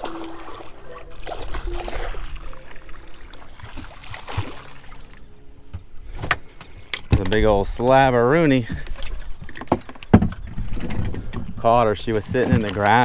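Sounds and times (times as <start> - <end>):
water sloshing at boat hull: 0.0 - 5.9, 8.5 - 13.0
sharp splashes or knocks: 3.6 - 5.0.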